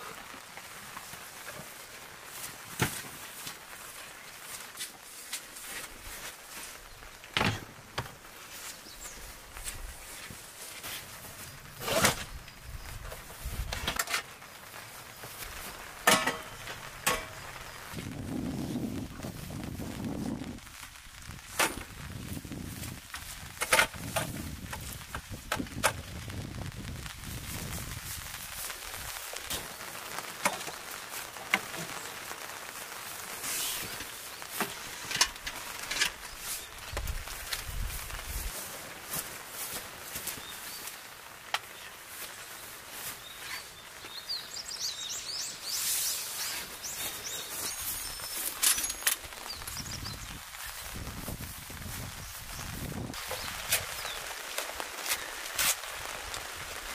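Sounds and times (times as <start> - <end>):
outdoor background hiss: 0.0 - 56.9
rain pattering on a tarp: 0.0 - 56.9
birds chirping: 5.7 - 10.3, 40.2 - 51.0, 52.0 - 54.8.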